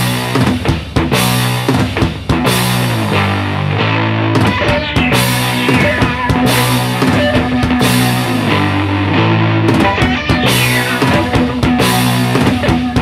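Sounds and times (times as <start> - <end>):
drum hits: 0.0 - 2.9, 4.4 - 8.4, 9.7 - 13.0
low sustained guitar notes: 3.1 - 13.0.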